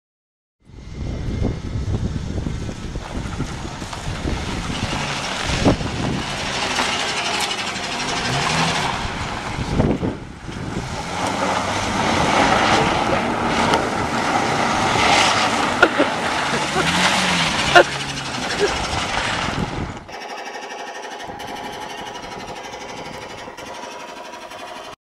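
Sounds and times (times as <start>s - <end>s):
wind on microphone: 0.6s - 6.8s, 8.2s - 15.7s, 18.6s - 20.1s
car engine revving: 1.4s - 25.0s
tyres spinning on dirt: 2.7s - 25.0s
dirt and gravel spraying: 2.8s - 20.0s.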